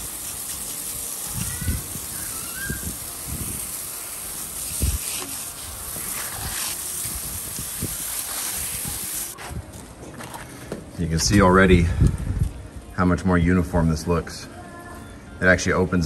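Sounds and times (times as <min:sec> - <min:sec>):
hose spraying water on concrete: 0:00.0 - 0:09.4.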